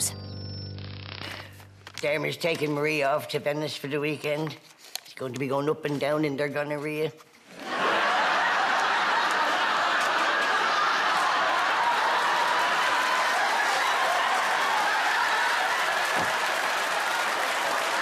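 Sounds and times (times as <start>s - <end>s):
audience laughing: 7.5s - 12.7s
people clapping: 7.7s - 18.0s.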